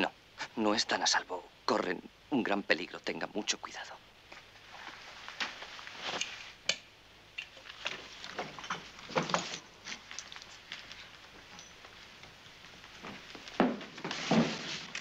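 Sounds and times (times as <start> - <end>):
small objects clicking and rustling: 7.4 - 12.0.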